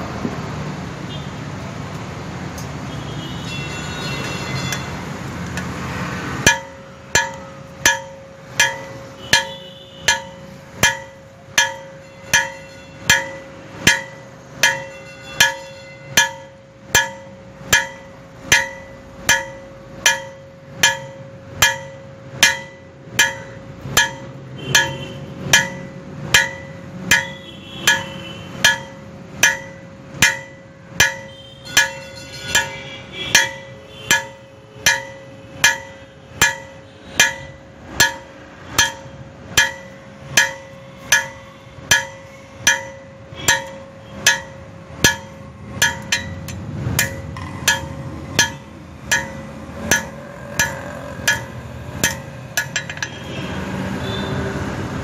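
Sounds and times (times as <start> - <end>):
hammer striking steel on anvil: 6.4 - 53.4
steady rushing noise: 33.4 - 53.8.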